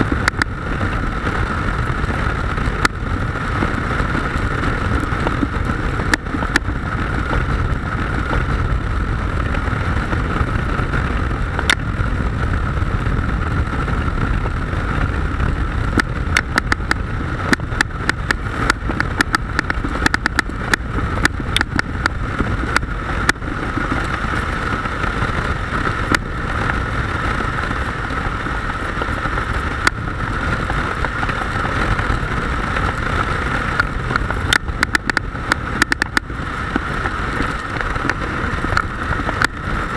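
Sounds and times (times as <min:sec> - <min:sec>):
motorcycle engine and road drone: 0:00.0 - 0:39.9
sharp clicks: 0:16.0 - 0:21.9, 0:34.5 - 0:36.2.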